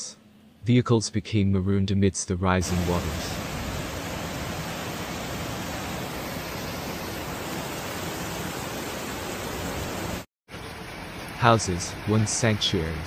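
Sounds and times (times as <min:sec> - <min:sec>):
floodwater running down a street: 0:02.6 - 0:13.0
torrential rain: 0:02.6 - 0:13.0.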